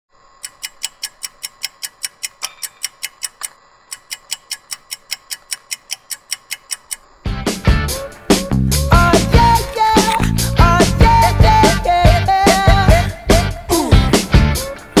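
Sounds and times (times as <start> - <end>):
rapid even ticking signal: 0.4 - 7.1.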